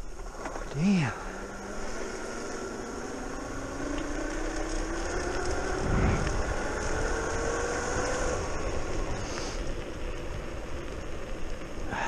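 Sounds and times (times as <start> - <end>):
low rumble: 0.0 - 12.0
wind and tyre noise: 0.0 - 12.0
electric scooter motor whining: 0.2 - 11.8.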